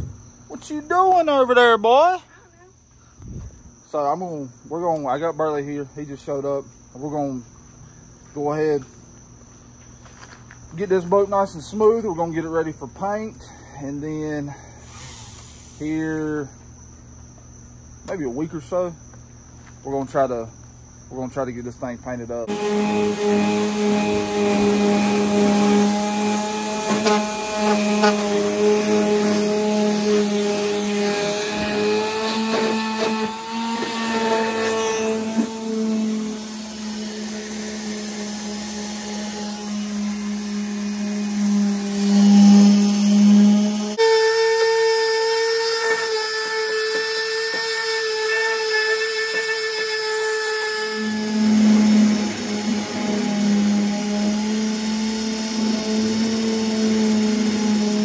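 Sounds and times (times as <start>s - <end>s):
cordless drill spinning wire wheel: 22.5s - 58.0s
orbital sander grinding metal: 22.5s - 58.0s.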